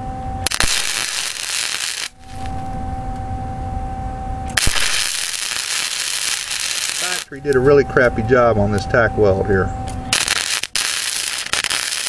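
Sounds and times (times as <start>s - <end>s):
welder hum: 0.0s - 12.0s
welding arc crackling: 0.4s - 2.8s, 4.5s - 7.8s, 10.1s - 12.0s.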